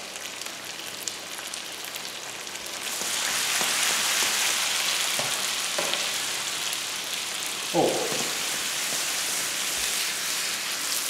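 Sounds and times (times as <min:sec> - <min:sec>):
rice and spices sizzling in a pan: 0:00.0 - 0:11.0.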